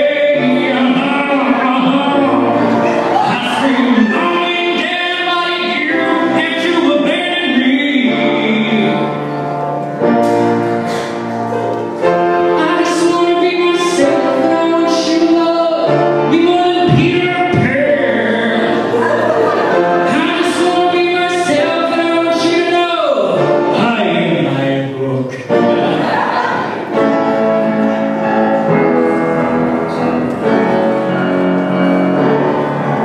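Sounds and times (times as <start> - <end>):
man singing into microphone: 0.0 - 9.6, 12.4 - 26.0
instrumental accompaniment: 0.0 - 33.0.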